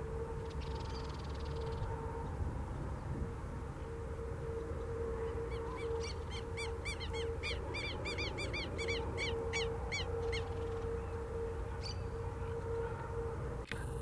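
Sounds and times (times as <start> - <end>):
ibis calling: 5.2 - 13.2.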